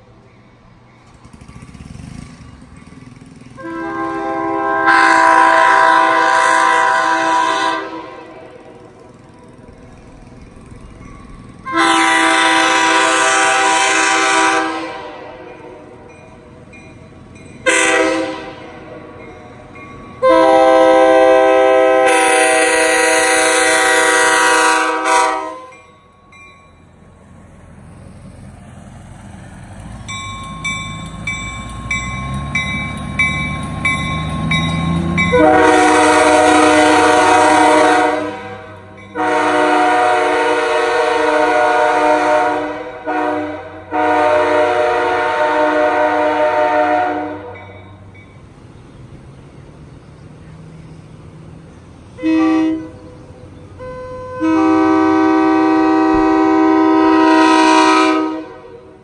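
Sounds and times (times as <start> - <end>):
vehicle passing: 1.1 - 16.1, 27.1 - 47.5
locomotive air horn blasts: 3.6 - 8.6, 11.6 - 16.0, 17.6 - 19.1, 20.2 - 25.8, 35.2 - 47.7, 52.2 - 53.1, 53.8 - 59.0.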